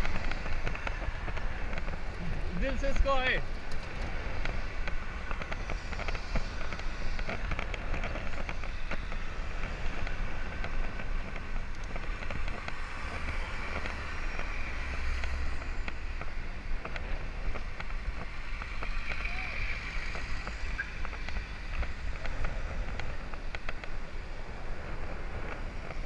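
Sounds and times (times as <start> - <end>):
road rumble: 0.0 - 26.0
bicycle clicks and rattles: 3.4 - 26.0.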